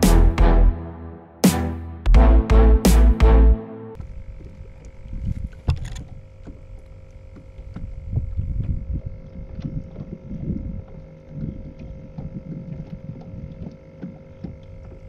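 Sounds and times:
electronic music with heavy beats: 0:00.0 - 0:04.0
rumble of wind and water: 0:04.0 - 0:15.0.

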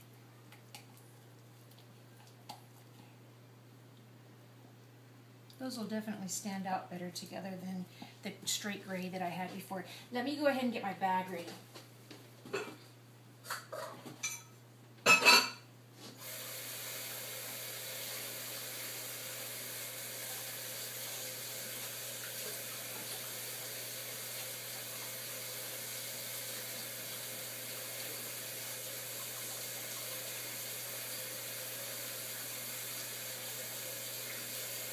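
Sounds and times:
tap water running into a sink: 0:16.2 - 0:34.9.

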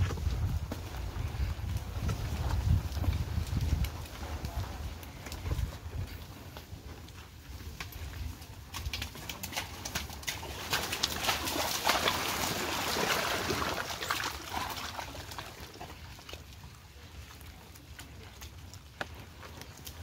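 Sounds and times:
squelching and sloshing in mud: 0:07.5 - 0:20.0.

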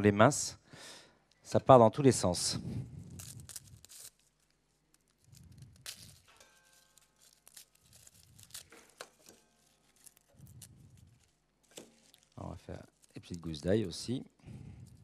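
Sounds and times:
dry papery skin crackling: 0:02.8 - 0:15.0.

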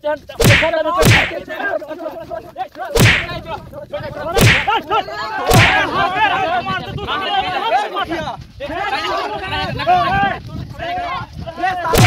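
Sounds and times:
sharp loud slaps: 0:00.4 - 0:01.4, 0:03.0 - 0:03.4, 0:04.4 - 0:04.8, 0:05.5 - 0:05.8.

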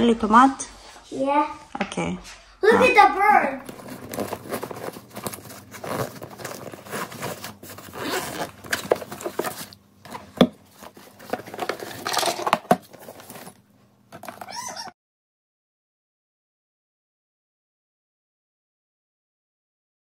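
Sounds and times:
packaging rustling and tearing: 0:03.6 - 0:13.6.

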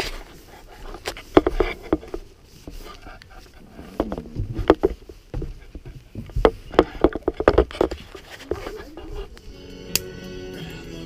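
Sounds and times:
low thumps: 0:03.4 - 0:09.4.

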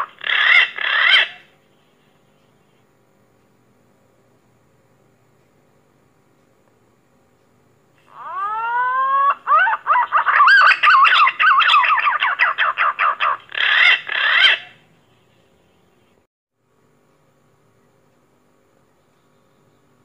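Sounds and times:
pigeon whistling call: 0:08.2 - 0:14.7.

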